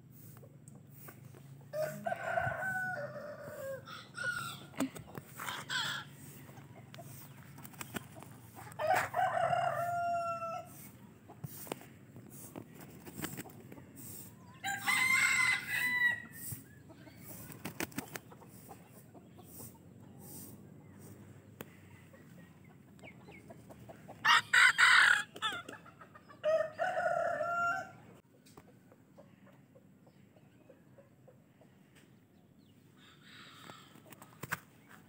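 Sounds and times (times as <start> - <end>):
roosters crowing: 1.6 - 7.2, 8.5 - 11.0, 14.5 - 16.7, 24.1 - 28.2.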